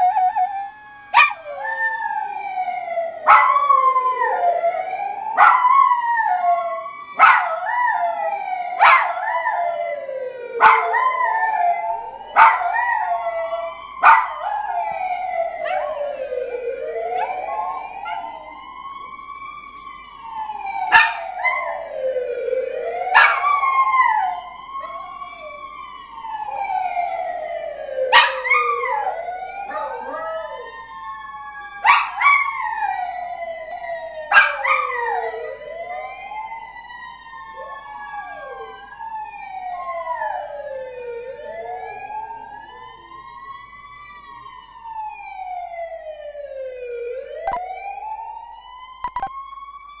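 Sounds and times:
small dog howling: 0:00.0 - 0:02.4, 0:10.6 - 0:14.9, 0:15.5 - 0:18.6, 0:23.1 - 0:25.7, 0:28.1 - 0:30.8, 0:34.3 - 0:36.3, 0:37.5 - 0:38.9
wailing emergency siren: 0:00.0 - 0:50.0.

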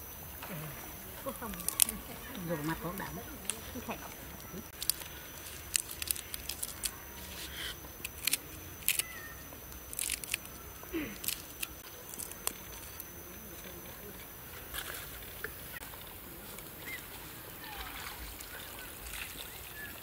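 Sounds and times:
leafy herbs crackling and rustling: 0:01.1 - 0:20.0
knife cutting and scraping leaves: 0:01.4 - 0:15.5.

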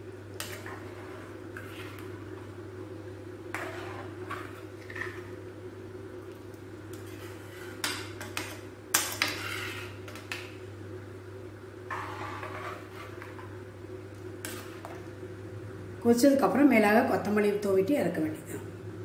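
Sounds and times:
metal spoon scraping a pan: 0:00.4 - 0:02.2, 0:03.5 - 0:05.3, 0:06.9 - 0:10.4, 0:11.9 - 0:13.5, 0:14.4 - 0:15.0.

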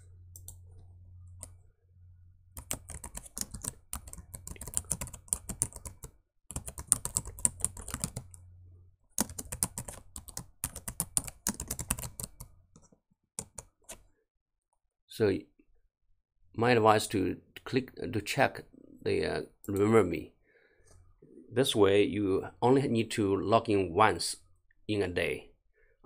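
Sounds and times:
faint low hum: 0:00.0 - 0:10.4
computer keyboard typing: 0:02.6 - 0:08.4, 0:09.2 - 0:14.0.

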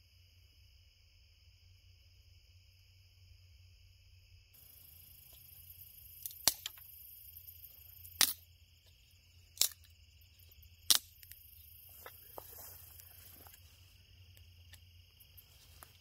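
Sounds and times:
crickets chirring: 0:00.0 - 0:16.0
fire popping and cracking: 0:06.2 - 0:07.0, 0:09.5 - 0:13.2.

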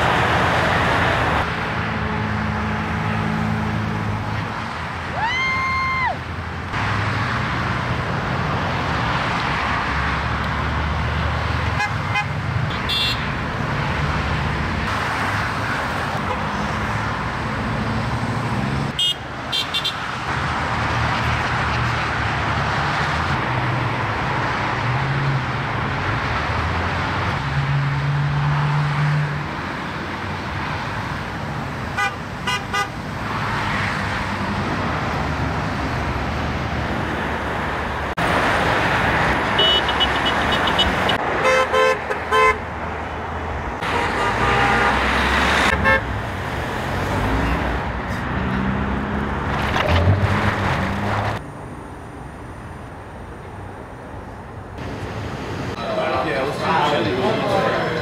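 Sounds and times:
highway traffic passing: 0:00.0 - 0:58.0
car horn toots: 0:11.8 - 0:13.3, 0:19.0 - 0:20.0, 0:39.6 - 0:42.6, 0:43.8 - 0:45.1, 0:45.7 - 0:46.1.

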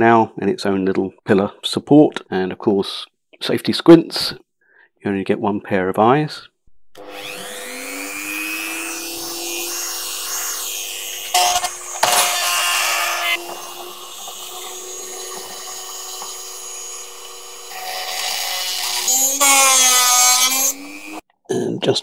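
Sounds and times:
cutoff wheel grinding metal: 0:07.0 - 0:21.2
rotary tool whine: 0:07.0 - 0:21.2.

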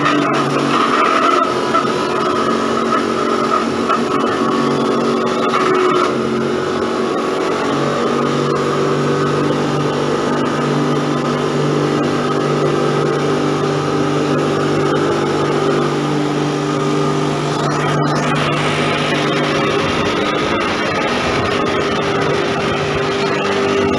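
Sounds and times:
machine motor humming: 0:00.0 - 0:23.9.

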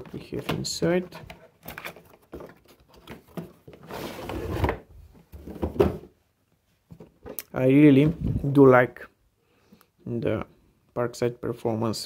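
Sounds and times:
sliding scrape: 0:03.8 - 0:04.8.

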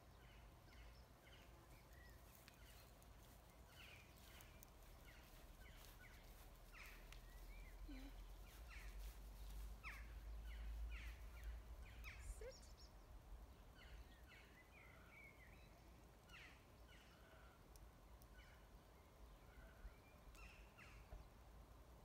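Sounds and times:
bird chirps: 0:00.1 - 0:17.5.

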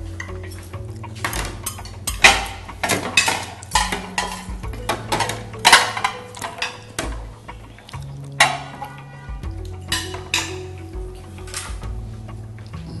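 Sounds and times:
cutlery clinking on plates: 0:00.2 - 0:07.3, 0:09.7 - 0:10.8.

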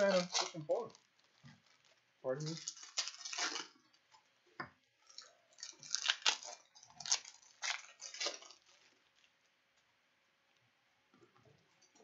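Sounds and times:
foil wrappers crinkling: 0:00.0 - 0:04.3, 0:05.0 - 0:09.6.

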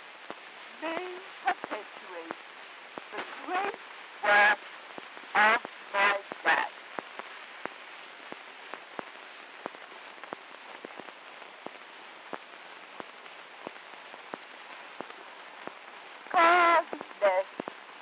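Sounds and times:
steady record hiss: 0:00.0 - 0:18.0
woman speaking: 0:00.8 - 0:02.4, 0:03.2 - 0:04.5, 0:16.3 - 0:17.5.

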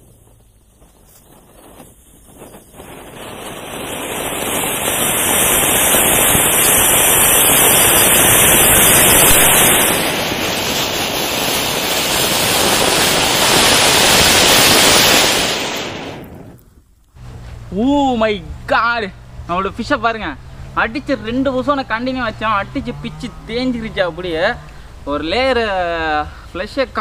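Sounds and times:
fountain fireworks hissing: 0:00.8 - 0:16.6.

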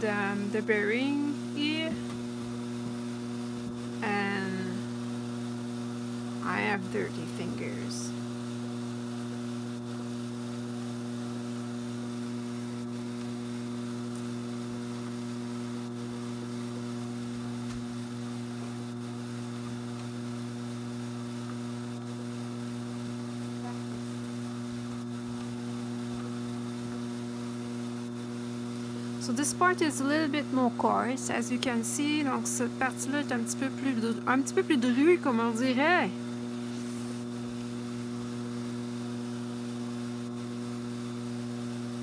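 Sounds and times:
electric motor humming: 0:00.0 - 0:42.0.

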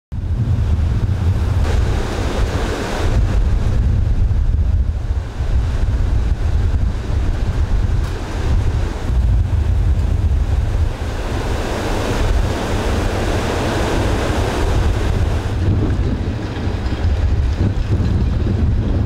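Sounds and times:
heavy surf crashing: 0:00.1 - 0:19.0
wind buffeting microphone: 0:00.1 - 0:19.0.

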